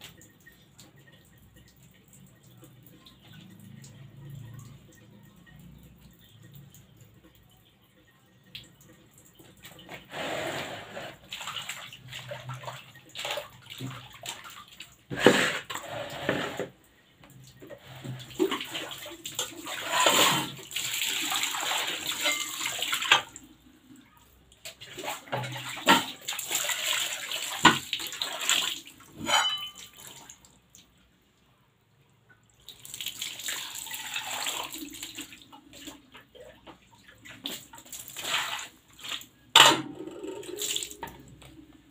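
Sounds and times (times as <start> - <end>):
water poured and splashing: 8.4 - 31.0, 32.5 - 41.9.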